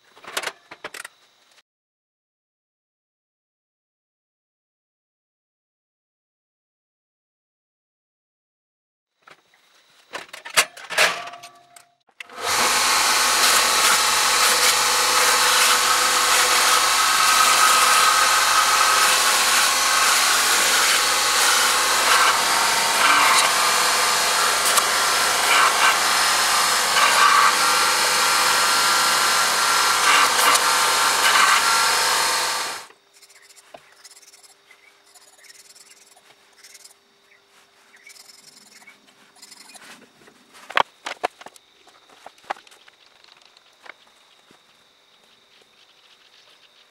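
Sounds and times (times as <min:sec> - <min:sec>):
belt sander grinding knife blade: 0:12.2 - 0:37.0, 0:38.0 - 0:39.9.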